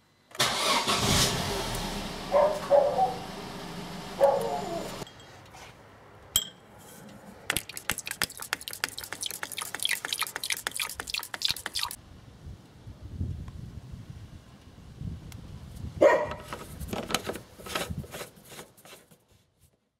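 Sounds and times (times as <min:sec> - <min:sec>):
car engine idling: 0:00.6 - 0:05.0
glass clink: 0:06.4 - 0:06.6
liquid dripping: 0:07.5 - 0:12.0.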